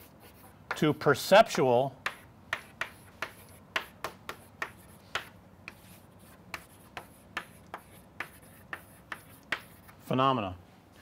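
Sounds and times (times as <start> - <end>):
chalk tapping on blackboard: 2.0 - 10.0.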